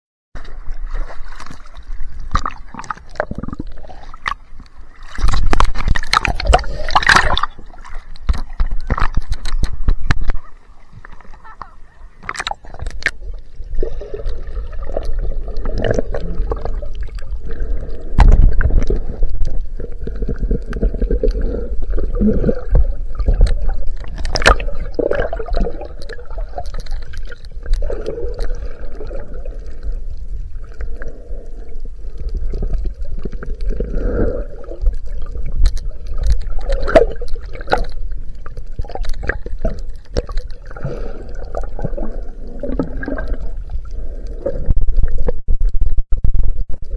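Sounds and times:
water churning underwater: 0.4s - 46.9s
bubble clicks and pops: 22.4s - 28.5s.

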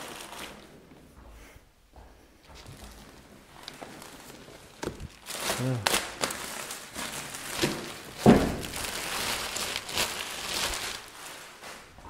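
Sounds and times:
plastic film rustling and crinkling: 0.0s - 1.1s, 2.5s - 12.0s
thump against cardboard box: 8.2s - 8.7s.

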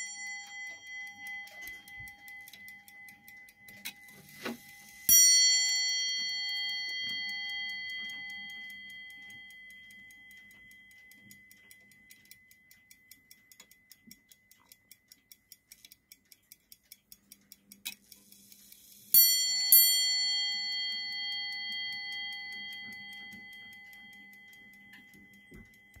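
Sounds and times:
clock bell strikes: 0.0s - 10.9s, 19.2s - 26.0s
clock ticking: 0.0s - 26.0s.

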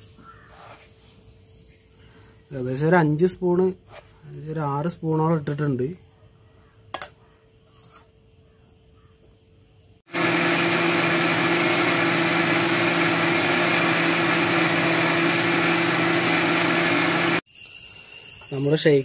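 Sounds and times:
mixer grinder running: 10.1s - 17.4s.

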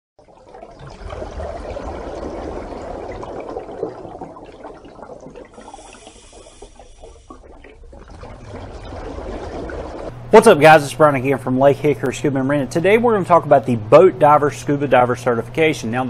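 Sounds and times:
water rushing and bubbling: 0.2s - 10.1s.

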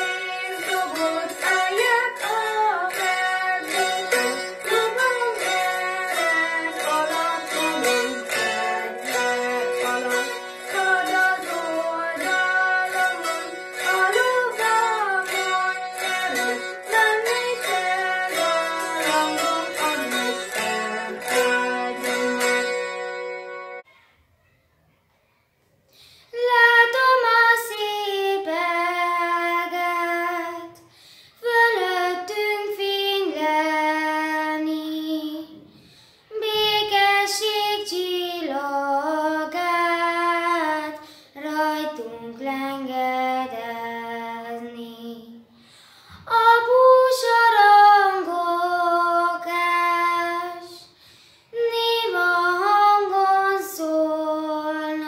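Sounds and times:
girl singing unaccompanied: 0.0s - 22.8s, 26.3s - 55.0s.

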